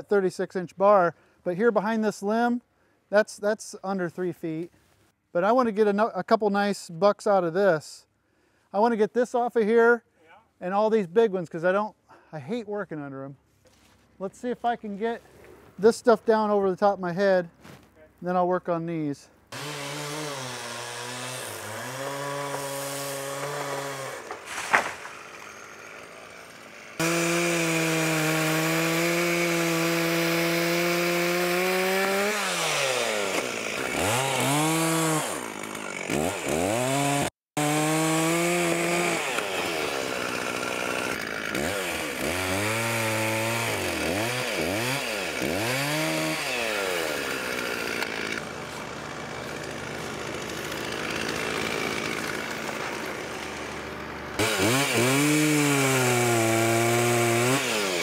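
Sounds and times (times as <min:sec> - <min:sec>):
chainsaw revving: 0:19.5 - 0:58.0.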